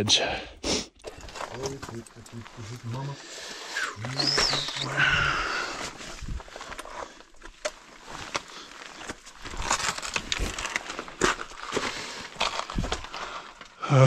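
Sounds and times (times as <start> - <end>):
boots stepping on rock and gravel: 5.7 - 13.7.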